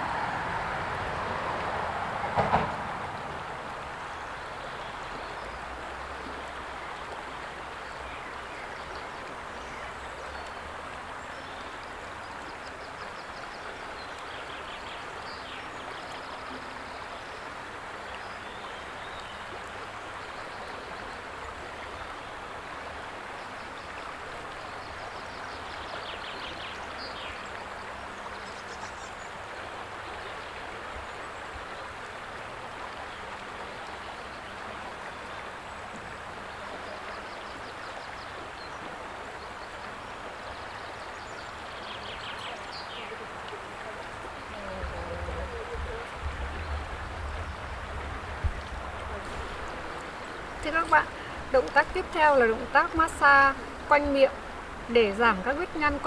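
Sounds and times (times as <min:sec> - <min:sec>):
river rushing: 0:00.0 - 0:56.0.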